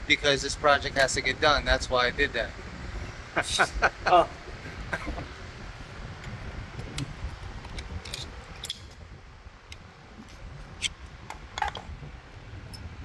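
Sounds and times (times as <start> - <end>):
low steady rumble: 0.0 - 13.0
metal pick clicking and scraping: 7.6 - 9.0.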